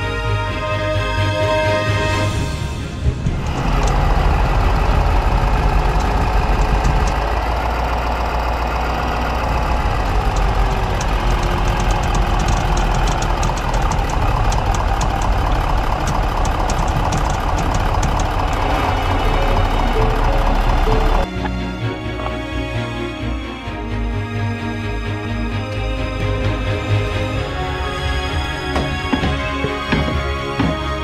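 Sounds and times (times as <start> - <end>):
pickup truck engine idling: 3.0 - 22.6
light fast ticking: 3.4 - 21.3.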